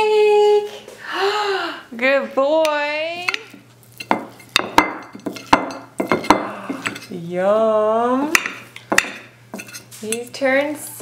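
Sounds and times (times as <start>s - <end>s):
knife scraping a ceramic plate: 3.4s - 7.2s, 9.0s - 10.2s.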